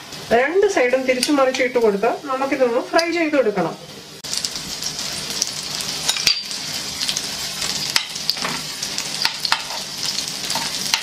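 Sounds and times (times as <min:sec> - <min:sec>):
prawns sizzling in hot oil: 0:00.0 - 0:11.0
spoon turning food in pan: 0:04.2 - 0:11.0.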